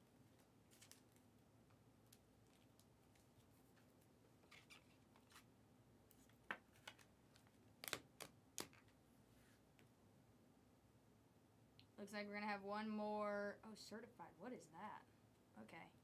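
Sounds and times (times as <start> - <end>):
card clicks and snaps: 7.8 - 8.8
trading cards tapping: 7.8 - 8.9.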